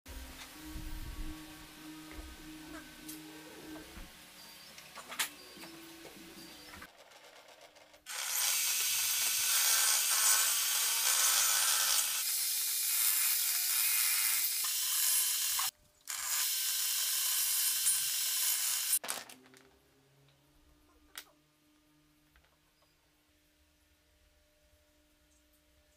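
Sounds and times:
table saw cutting wood: 8.1 - 19.0.

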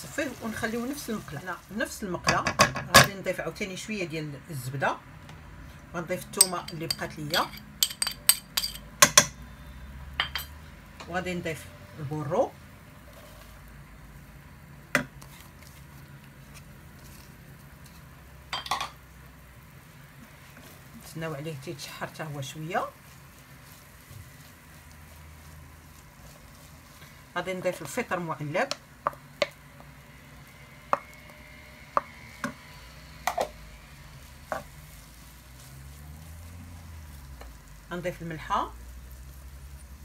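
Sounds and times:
vegetables sizzling in pan: 0.0 - 3.5, 6.4 - 40.0
wooden spoon knocking on pan: 28.6 - 29.6, 34.5 - 34.7.

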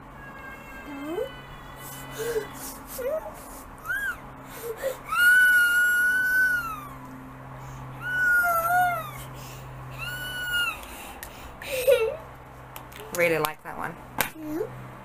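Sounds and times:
young child squealing: 2.1 - 7.0, 8.0 - 10.9.

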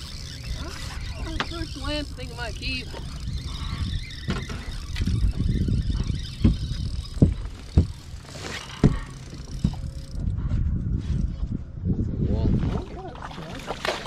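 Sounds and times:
wind on microphone: 0.0 - 13.9.

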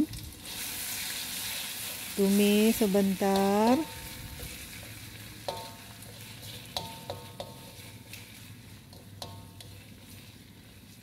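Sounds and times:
paste sizzling in hot oil: 0.0 - 11.0
spatula clinking on wok: 5.4 - 7.9, 8.9 - 10.0.

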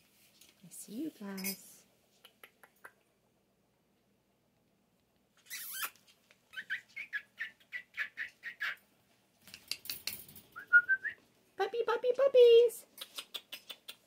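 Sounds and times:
puppies squeaking and whimpering: 5.4 - 6.0.

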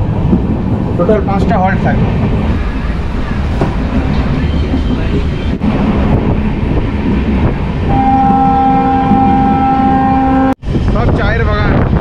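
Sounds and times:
train rumbling on track: 0.0 - 12.0
train horn blast: 7.9 - 10.6.

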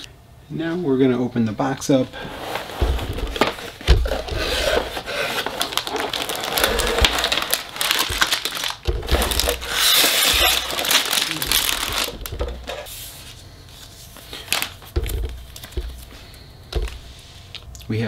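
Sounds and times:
plastic bags crinkling: 2.2 - 12.9, 14.3 - 17.2
cardboard box opening: 2.3 - 12.9.

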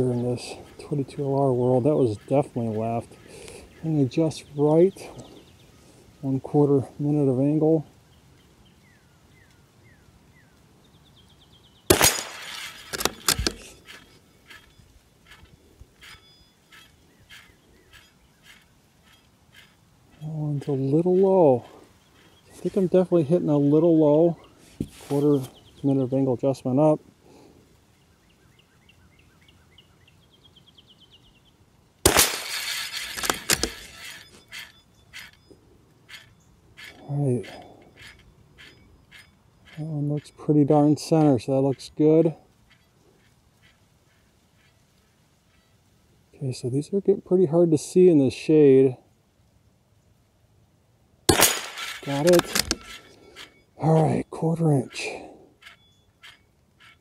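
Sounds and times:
rifle shot: 11.9 - 13.6, 32.0 - 33.7, 51.3 - 52.8
rifle bolt clicking: 11.9 - 14.6, 32.1 - 34.2, 51.3 - 53.1
faint bird chirps: 13.7 - 26.3, 33.7 - 45.9, 52.0 - 57.0.

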